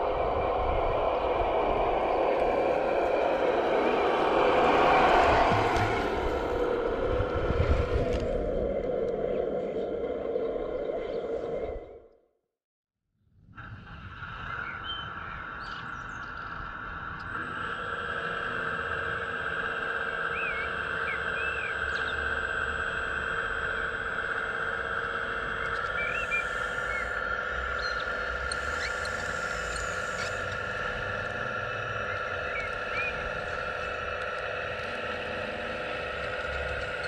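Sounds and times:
birds chirping: 19.5s - 37.0s
hydraulic pump whining: 20.3s - 37.0s.

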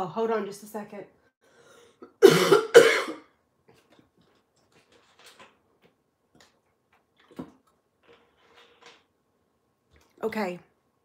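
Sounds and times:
person coughing: 2.0s - 3.3s.

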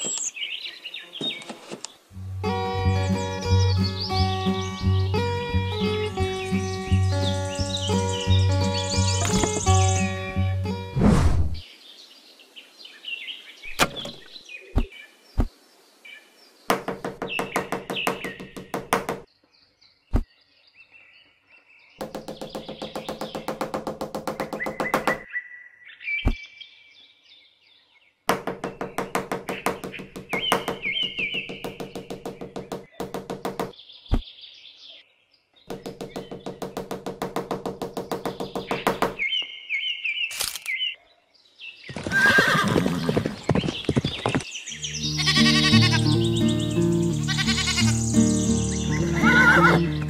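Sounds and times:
birds chirping: 0.0s - 50.0s
rapid even knocking: 16.7s - 19.2s, 22.0s - 25.2s, 28.3s - 33.7s, 35.7s - 39.2s.

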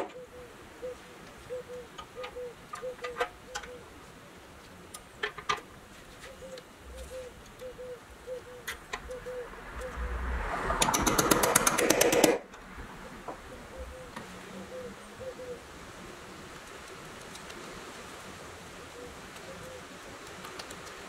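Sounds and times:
toy wheels clicking on axles: 10.8s - 12.4s.

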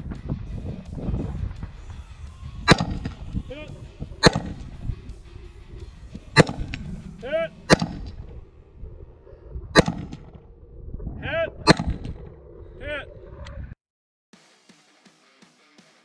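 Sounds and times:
rifle shots: 2.7s - 3.4s, 4.1s - 4.9s, 6.2s - 7.0s, 7.6s - 8.4s, 9.8s - 10.4s, 11.7s - 12.2s.

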